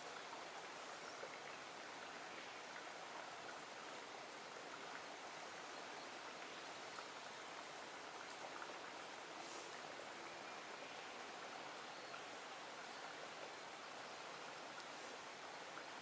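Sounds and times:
faint stream water flowing: 0.0 - 16.0.

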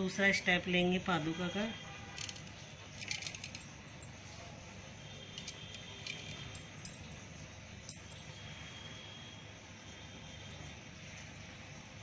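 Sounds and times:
bangles clinking and jingling: 2.1 - 8.4.

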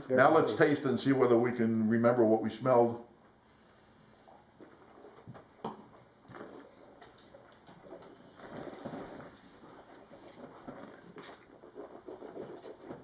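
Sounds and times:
slurping and swishing wine: 4.2 - 13.0.

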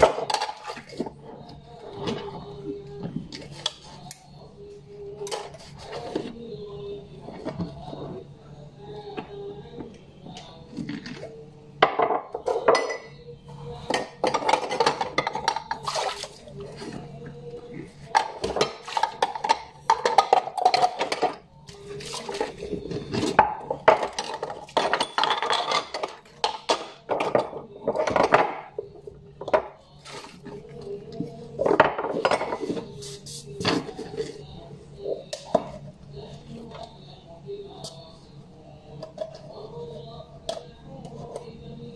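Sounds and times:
dishes clinking: 11.8 - 13.2, 18.0 - 21.4, 22.3 - 28.8
scrubbing: 15.8 - 17.1.

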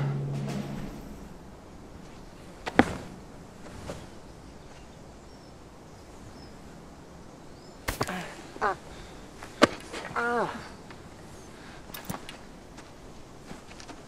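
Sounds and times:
faint outdoor hiss: 0.0 - 14.0.

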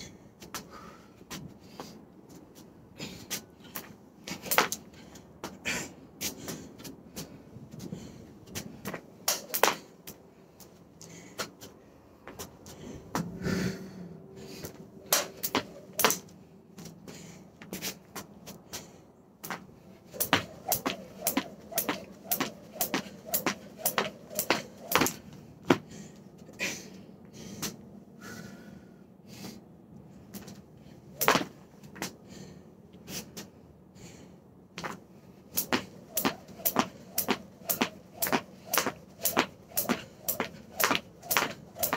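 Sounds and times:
jump rope slapping wooden deck: 4.3 - 4.8, 8.5 - 9.9, 15.1 - 16.2, 19.4 - 25.9, 31.2 - 32.2, 35.6 - 41.9.

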